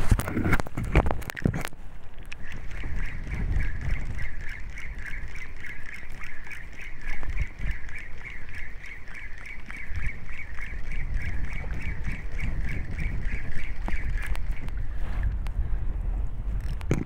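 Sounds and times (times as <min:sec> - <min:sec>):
wind buffeting microphone: 0:00.0 - 0:17.0
spinning reel cranking: 0:02.4 - 0:14.8.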